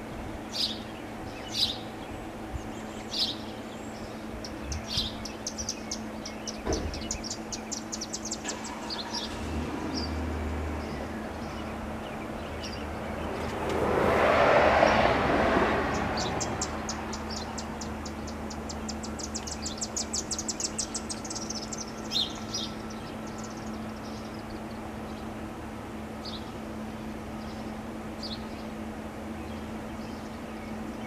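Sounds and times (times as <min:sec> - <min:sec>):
siren rotor low hum: 0:00.0 - 0:31.0
bird trilling and chirping: 0:00.5 - 0:09.4, 0:15.9 - 0:24.7
passing vehicle: 0:07.7 - 0:31.0.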